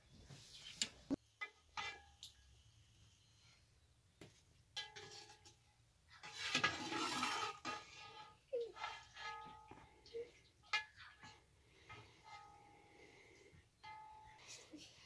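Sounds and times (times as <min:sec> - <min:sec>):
metal ladles scraping a metal pot: 0:01.2 - 0:02.6, 0:04.8 - 0:15.0.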